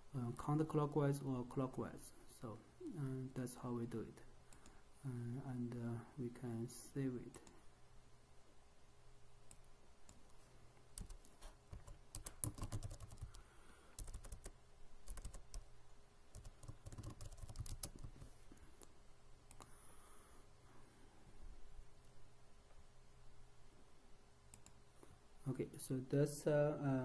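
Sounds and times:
computer keyboard typing: 11.0 - 13.4, 14.0 - 15.7, 16.3 - 18.3.

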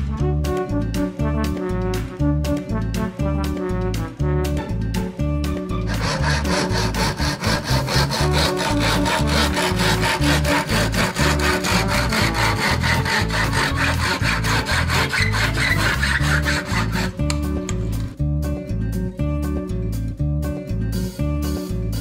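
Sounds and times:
background music with bass: 0.0 - 22.0
hand saw cutting bamboo: 5.8 - 17.5.

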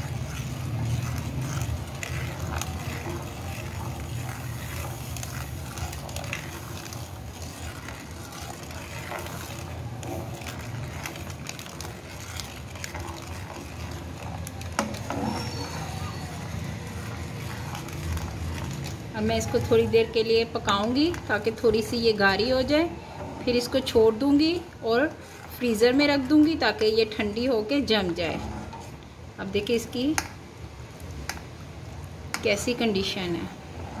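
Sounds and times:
metal spoon scraping a pan: 0.0 - 29.0.

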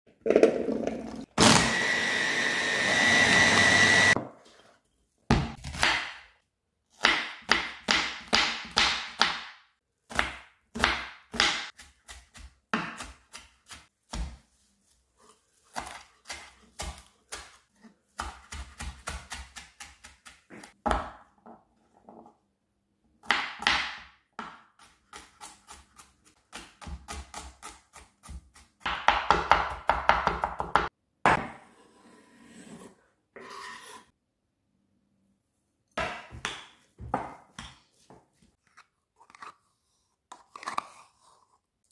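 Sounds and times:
electric blender whining: 1.4 - 4.2.

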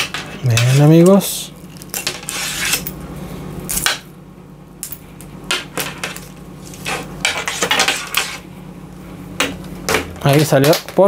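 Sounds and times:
knife scraping cable jacket: 2.1 - 2.9.

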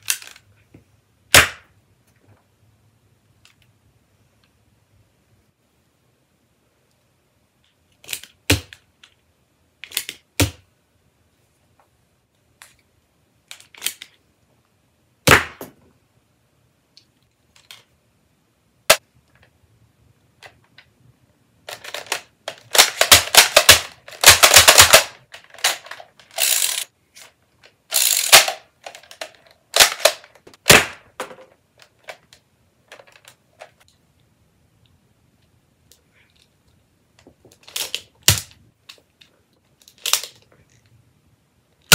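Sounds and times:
toy dart pistols clicking: 21.8 - 26.9, 27.9 - 30.3.

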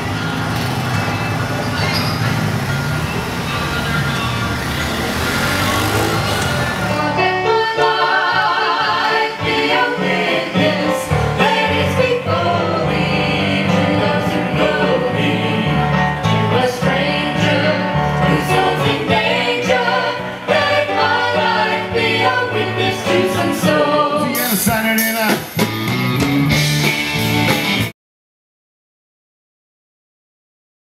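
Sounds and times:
person singing: 22.2 - 25.5.

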